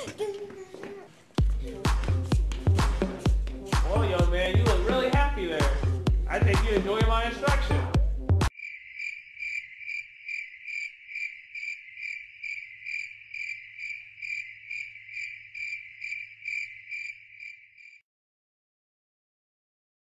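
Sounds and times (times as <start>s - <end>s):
music: 1.4s - 8.5s
crickets chirping: 8.5s - 18.0s.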